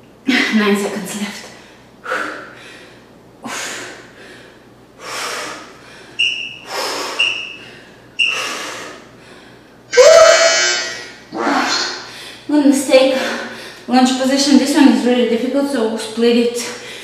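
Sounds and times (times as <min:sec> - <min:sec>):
woman breathing hard: 0:01.6 - 0:12.5, 0:13.1 - 0:13.9, 0:16.8 - 0:17.0.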